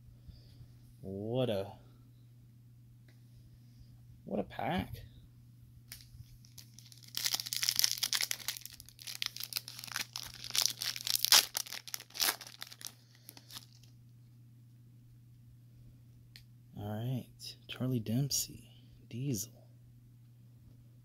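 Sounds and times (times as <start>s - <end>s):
foil wrapper tearing and crinkling: 5.9s - 13.9s.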